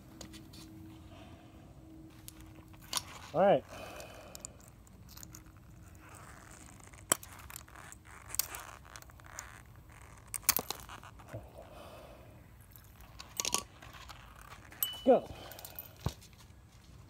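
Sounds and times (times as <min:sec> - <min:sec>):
pliers clicking and scraping: 0:02.2 - 0:03.3, 0:03.9 - 0:11.3.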